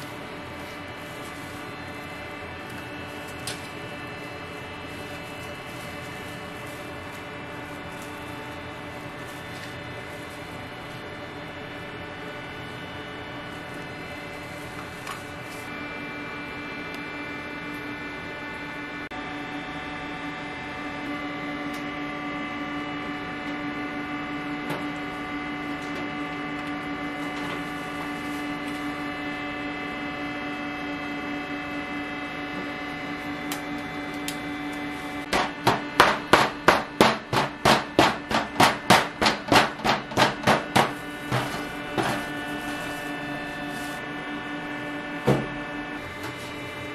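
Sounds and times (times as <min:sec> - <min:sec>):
steady machine hum: 0:00.0 - 0:46.9
metal scrapers clacking on griddle: 0:35.2 - 0:43.1.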